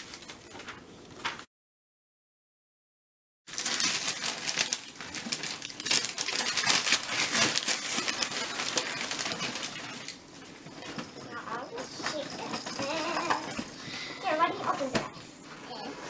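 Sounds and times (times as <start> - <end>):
wrapping paper tearing and crumpling: 0.0 - 0.7, 3.5 - 10.2.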